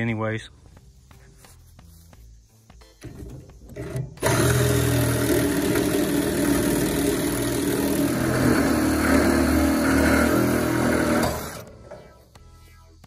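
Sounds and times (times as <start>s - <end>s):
cutoff wheel cutting metal: 3.7s - 12.0s.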